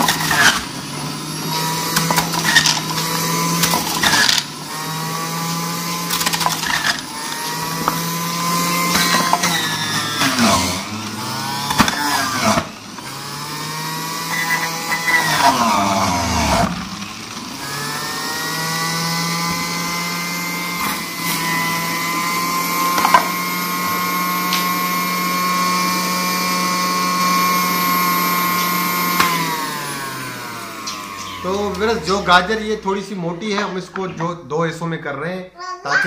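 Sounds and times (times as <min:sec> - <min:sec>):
electric juicer motor whining: 0:00.0 - 0:33.2.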